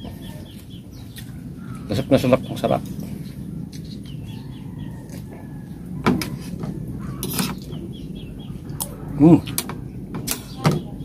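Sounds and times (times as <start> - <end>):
cutlery scraping a plate: 7.2 - 7.6.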